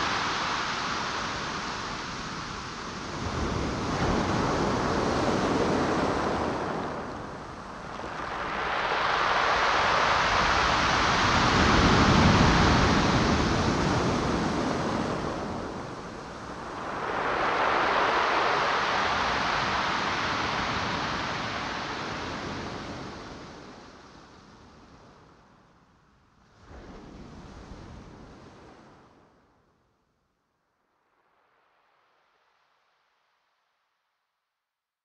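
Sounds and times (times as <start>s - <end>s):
ocean waves breaking: 0.0s - 23.5s.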